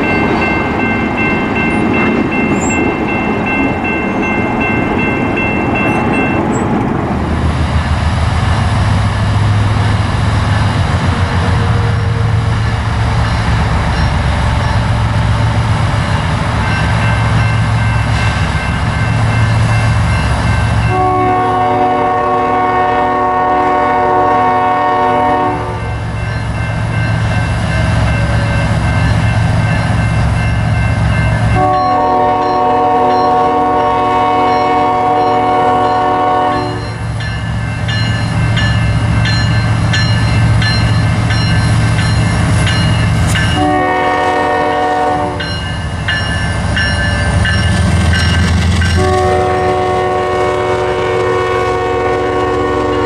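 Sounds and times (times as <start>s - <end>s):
train wheels clattering on rails: 0.0s - 21.4s, 25.8s - 53.0s
diesel engines rumbling: 0.0s - 23.6s
locomotive air horn blasts: 20.8s - 25.9s, 31.6s - 36.9s, 43.4s - 45.4s, 48.9s - 53.0s.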